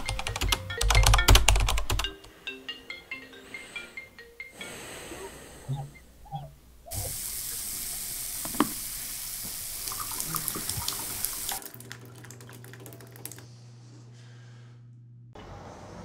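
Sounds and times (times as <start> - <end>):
running water hissing: 4.7 - 11.8
low hum: 12.2 - 16.0.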